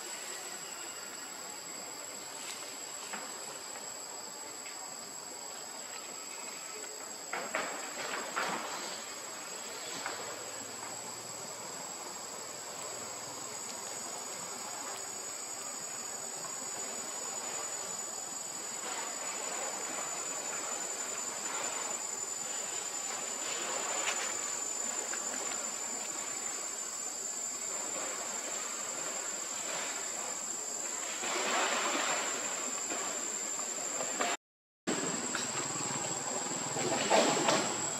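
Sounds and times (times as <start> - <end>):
insects droning: 0.0 - 37.9.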